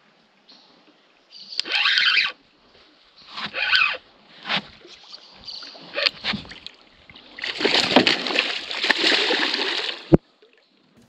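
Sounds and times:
fish splashing in water: 0:05.9 - 0:10.2.

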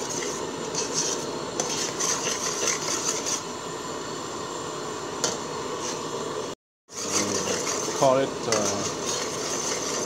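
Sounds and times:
ladle scraping pot: 0:00.0 - 0:03.5, 0:06.9 - 0:10.0
steady hiss: 0:00.0 - 0:10.0.

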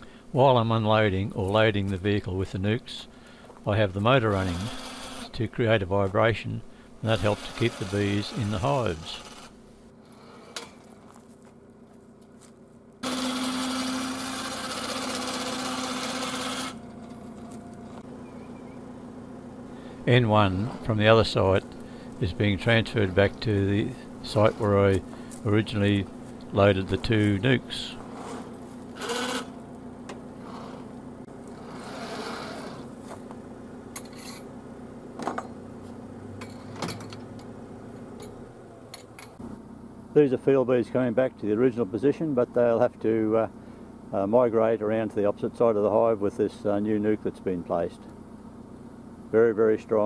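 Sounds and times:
truck engine idling: 0:01.0 - 0:10.0, 0:16.1 - 0:44.3
electric hoist motor humming: 0:01.0 - 0:11.0, 0:13.0 - 0:40.6.

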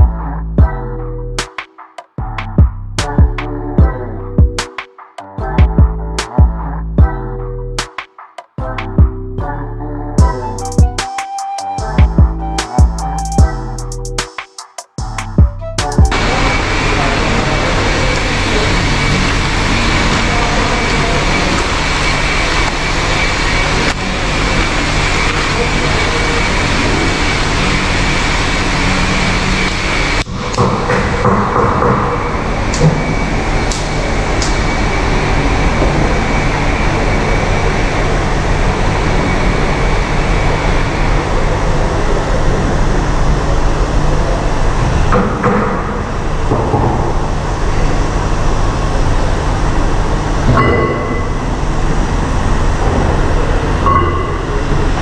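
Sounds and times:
workshop machinery humming: 0:10.2 - 0:14.3, 0:15.0 - 0:55.0.

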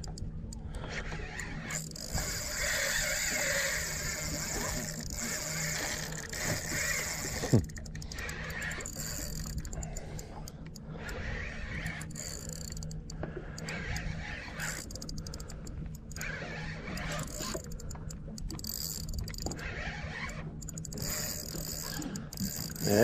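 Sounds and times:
fishing reel whirring and clicking: 0:00.0 - 0:23.0.

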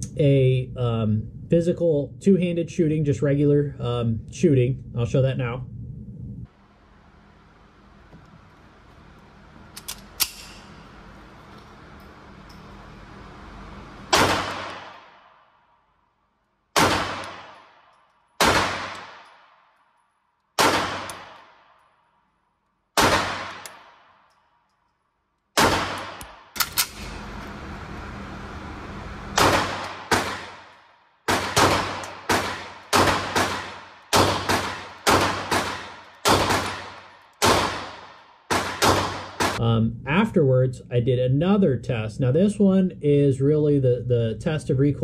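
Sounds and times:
steady background noise: 0:00.0 - 0:45.0
pistol shots echoing indoors: 0:14.1 - 0:27.2, 0:29.4 - 0:39.6.

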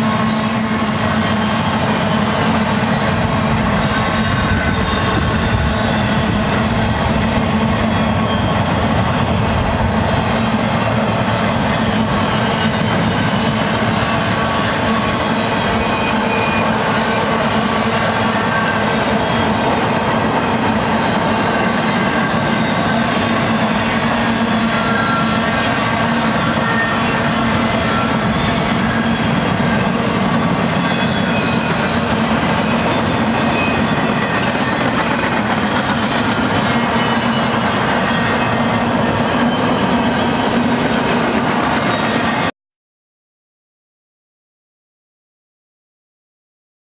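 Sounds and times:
train wheels rumbling on rails: 0:00.0 - 0:42.5.

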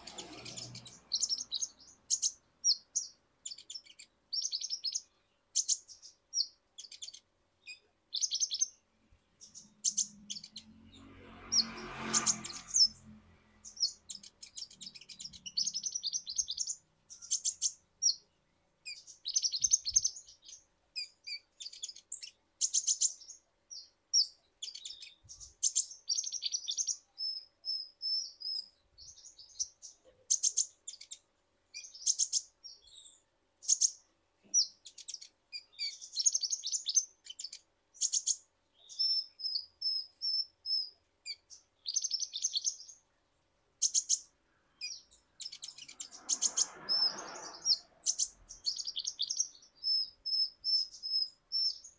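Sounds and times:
sunbird chirping and trilling: 0:00.0 - 0:51.9.

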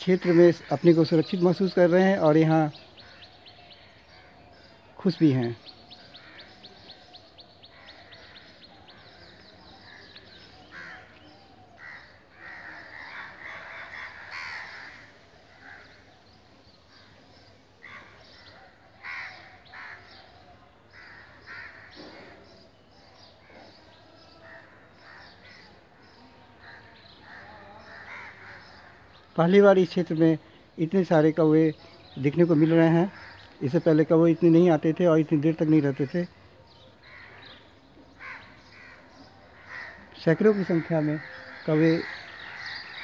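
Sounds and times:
crows cawing: 0:00.0 - 0:01.7, 0:03.0 - 0:04.8, 0:05.9 - 0:16.2, 0:16.9 - 0:22.5, 0:24.4 - 0:25.8, 0:26.6 - 0:29.3, 0:32.5 - 0:33.8, 0:35.8 - 0:43.0.

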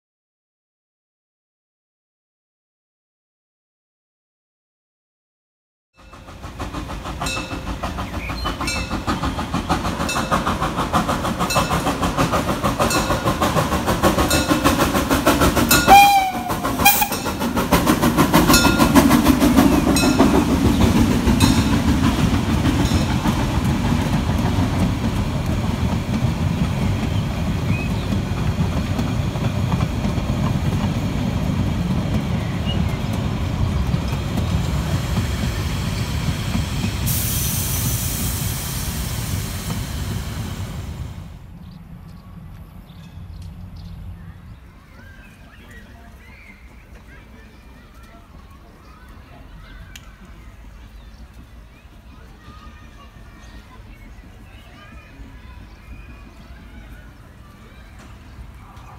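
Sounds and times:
train wheels clicking over rail joints: 0:06.0 - 0:41.4, 0:46.7 - 0:58.9
carriages rumbling past: 0:06.0 - 0:58.9
steam whistle blast: 0:15.8 - 0:17.3.

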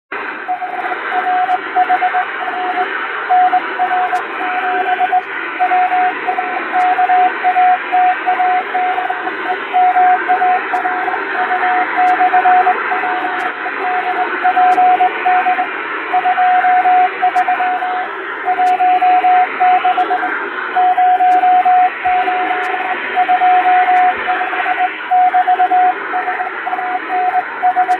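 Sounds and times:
radio static hiss: 0:00.1 - 0:27.9
morse code tone: 0:00.5 - 0:27.9.

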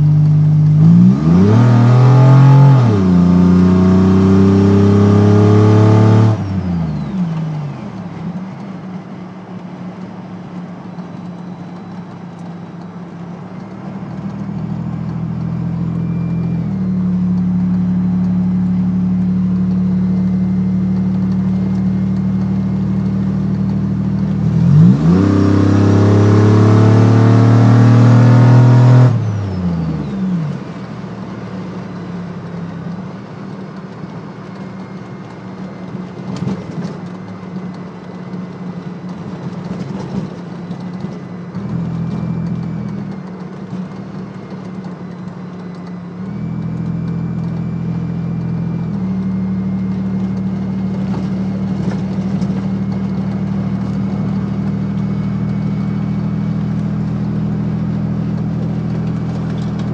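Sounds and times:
engine accelerating hard: 0:00.0 - 0:32.0.

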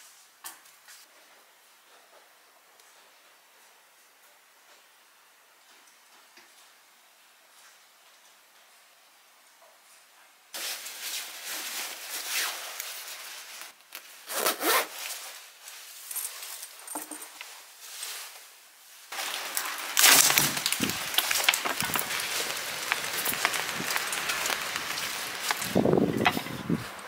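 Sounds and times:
coat rustling: 0:10.6 - 0:27.0
umbrella rustling: 0:10.6 - 0:27.0
zip scraping: 0:14.3 - 0:15.0.

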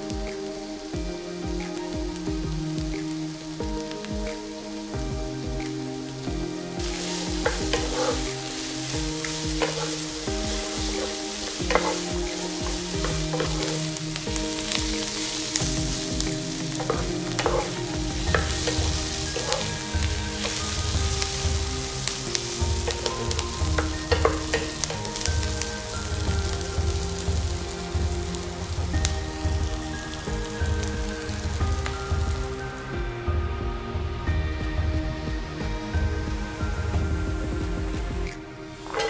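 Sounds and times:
onion sizzling in oil: 0:00.0 - 0:39.0
soft background music: 0:00.0 - 0:39.0
wooden spatula scraping a pan: 0:06.8 - 0:25.6, 0:38.8 - 0:39.0.

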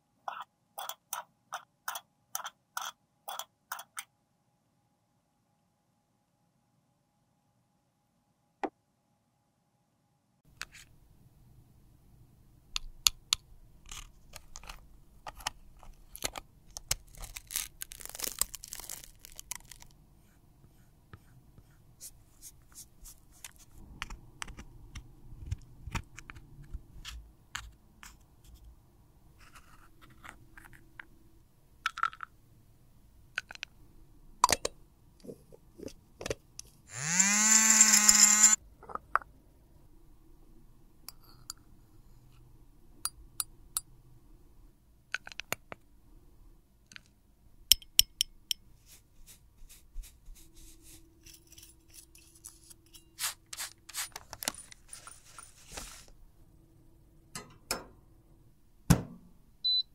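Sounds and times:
cosmetic containers clicking and tapping: 0:31.8 - 0:32.3, 0:46.9 - 0:48.6
small electric motor whirring: 0:36.9 - 0:38.6.

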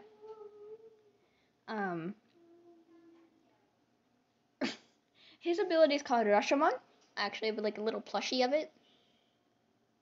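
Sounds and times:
person humming softly: 0:00.0 - 0:01.2, 0:02.0 - 0:03.4.

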